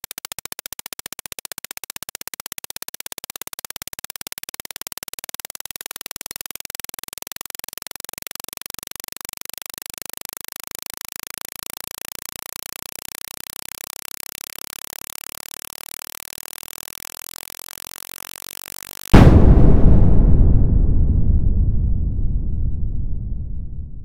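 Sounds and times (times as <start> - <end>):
timer ticking clicks: 0.0 - 19.2.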